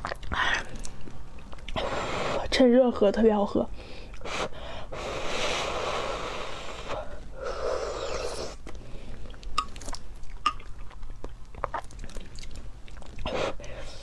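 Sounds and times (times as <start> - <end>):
breathy blowing: 3.8 - 9.2.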